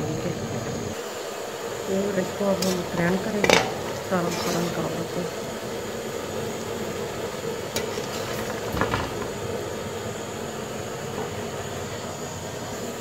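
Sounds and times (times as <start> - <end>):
kitchen hum and hiss: 0.0 - 13.0
utensil knocking steel pot: 2.5 - 4.9, 7.7 - 9.4.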